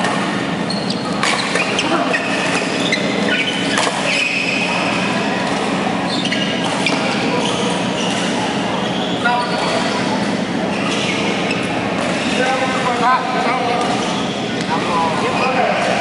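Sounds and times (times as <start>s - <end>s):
shoes squeaking on court: 0.0s - 16.0s
rackets striking shuttlecock: 1.0s - 2.8s.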